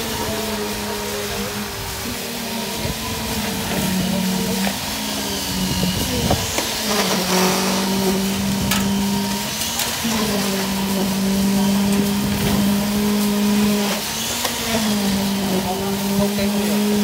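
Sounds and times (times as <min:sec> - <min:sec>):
pump engine running at high revs: 0:00.0 - 0:17.0.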